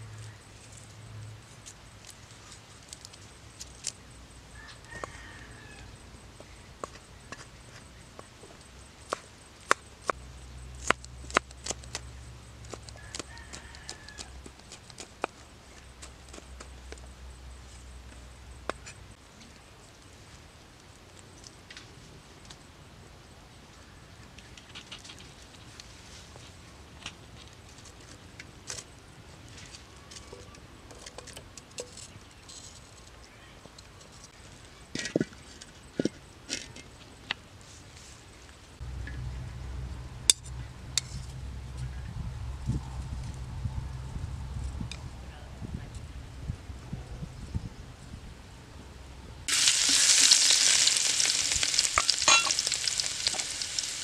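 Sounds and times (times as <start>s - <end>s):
low steady rumble: 38.8s - 49.5s
wood fire crackling: 49.5s - 54.0s.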